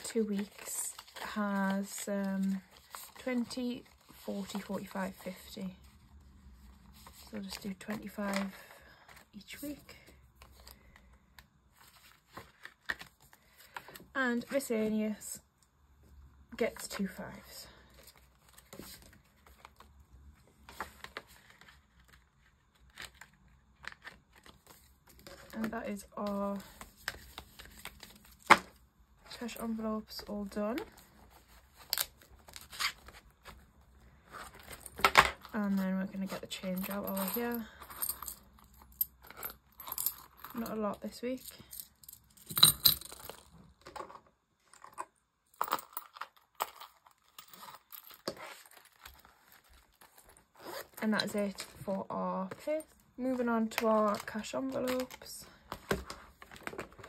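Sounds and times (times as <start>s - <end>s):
purse clicks and rustles: 34.3s - 40.8s, 41.4s - 51.8s
coins clinking: 41.5s - 43.5s.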